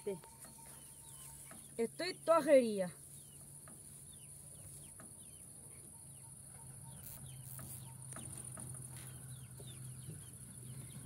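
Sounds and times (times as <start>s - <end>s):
chicks peeping: 3.1s - 11.0s.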